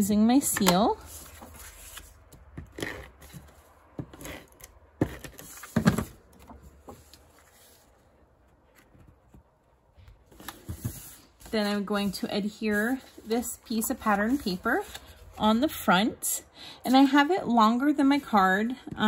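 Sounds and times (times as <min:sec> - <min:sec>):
paper rustling: 0:01.0 - 0:02.4.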